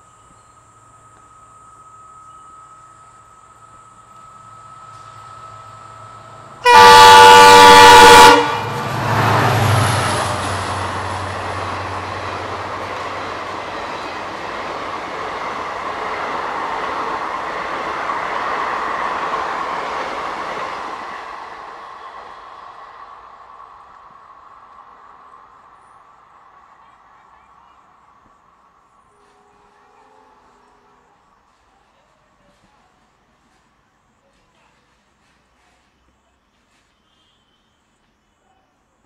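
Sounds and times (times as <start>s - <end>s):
train passing at speed: 0.0s - 37.0s
locomotive horn blast: 6.6s - 9.9s.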